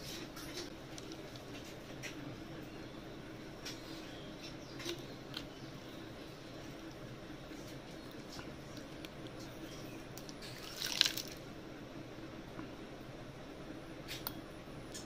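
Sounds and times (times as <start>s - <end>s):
wet clatter of snail shells: 10.3s - 11.4s.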